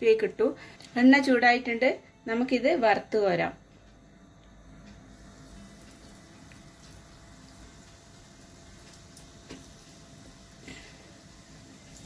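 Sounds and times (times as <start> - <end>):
food sizzling in hot oil: 5.1 - 12.0.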